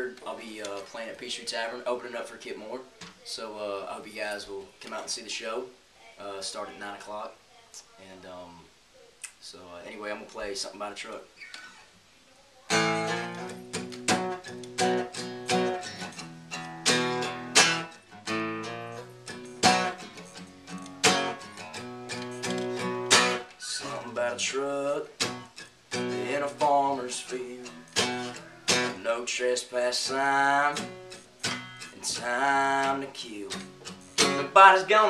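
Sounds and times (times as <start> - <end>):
acoustic guitar strumming: 12.7 - 35.0.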